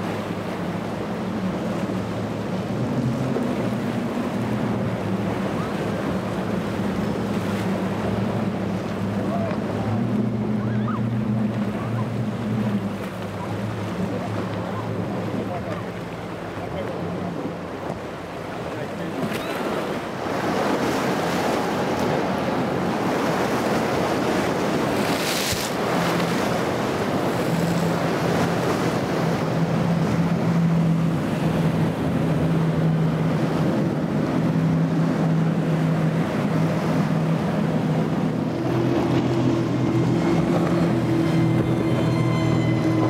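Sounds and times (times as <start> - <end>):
outboard engine drone: 0.0 - 43.0
water rushing under boats: 0.0 - 43.0
wind buffeting: 20.1 - 43.0.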